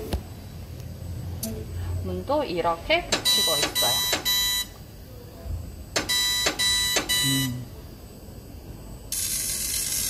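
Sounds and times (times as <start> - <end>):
buzzy electronic beeping: 6.2 - 7.8.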